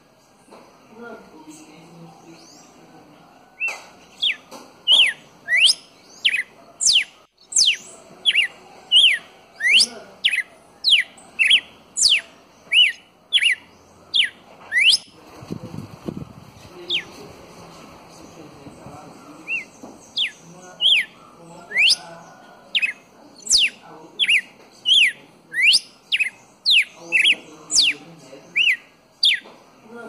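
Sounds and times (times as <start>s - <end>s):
bird singing whistled notes: 3.6s - 15.2s, 19.3s - 29.5s
low rustling: 14.0s - 20.2s.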